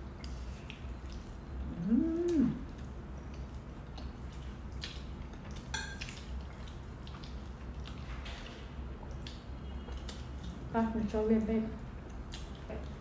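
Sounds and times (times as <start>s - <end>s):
person humming mmm: 1.6s - 2.7s.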